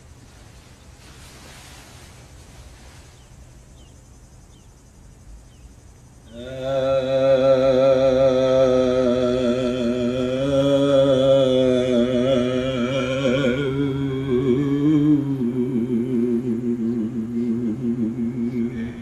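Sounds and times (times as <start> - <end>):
man chanting in deep voice: 6.3 - 19.0.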